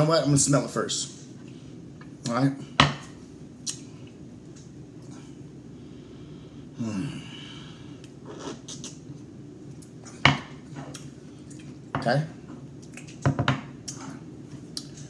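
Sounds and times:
low room hum: 0:00.0 - 0:15.0
man sighing: 0:06.8 - 0:07.8.

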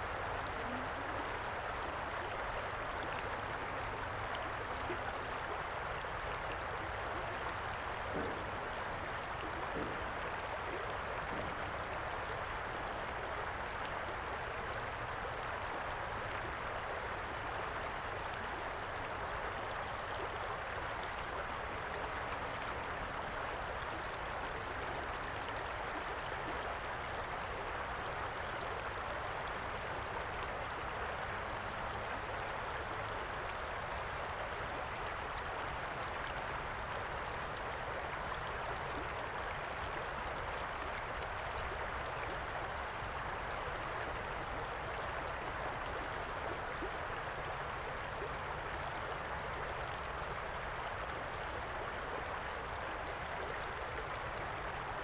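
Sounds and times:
river flowing over stones: 0:00.0 - 0:55.0.

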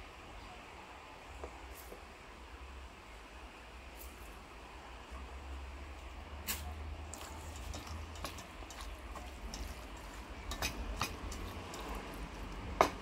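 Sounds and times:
wet squelches of kneading meat: 0:05.9 - 0:13.0
clicks against metal bowl: 0:10.4 - 0:12.0.

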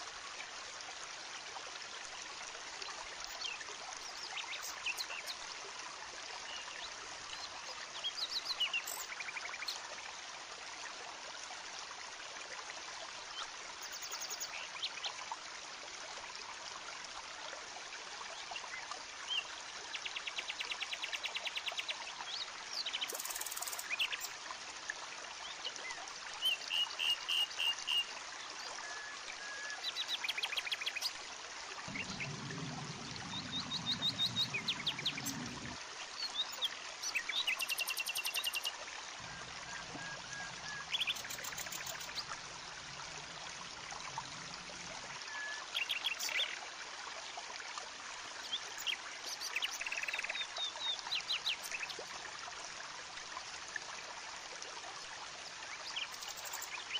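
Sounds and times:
birds chirping and trilling: 0:31.9 - 0:38.7, 0:39.3 - 0:42.3.

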